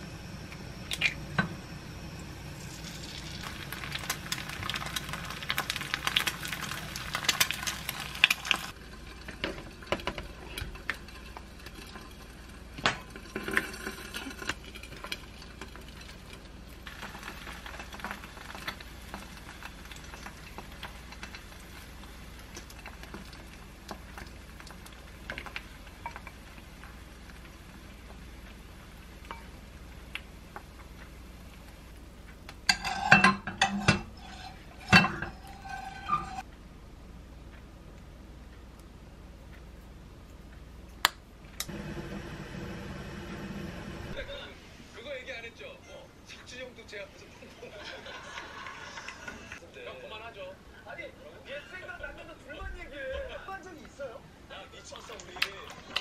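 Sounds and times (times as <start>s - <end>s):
egg sizzling in a pan: 0.0s - 36.5s, 41.6s - 44.5s.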